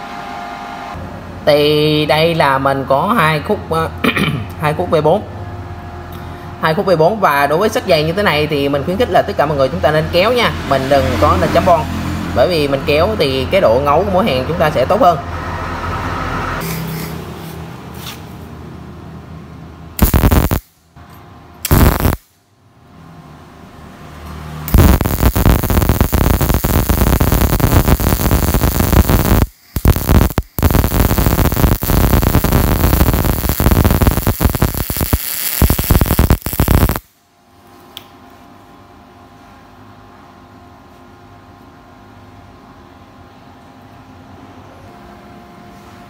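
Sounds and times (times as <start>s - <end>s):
welding arc crackling: 20.0s - 20.8s, 21.6s - 22.4s, 24.7s - 37.2s.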